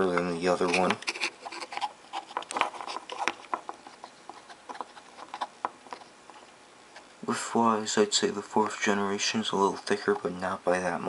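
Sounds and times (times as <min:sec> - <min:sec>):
fingers clicking and tapping devices: 0:00.0 - 0:06.5.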